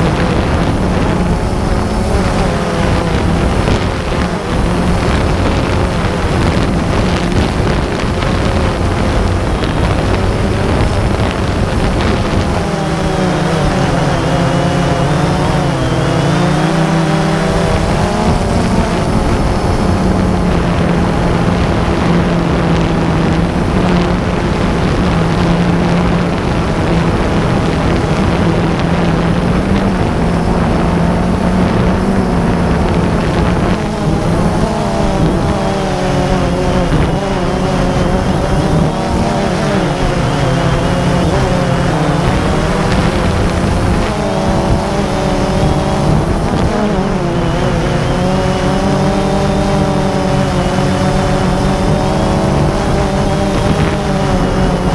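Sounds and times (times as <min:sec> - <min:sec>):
drone motors buzzing: 0:00.0 - 0:54.9.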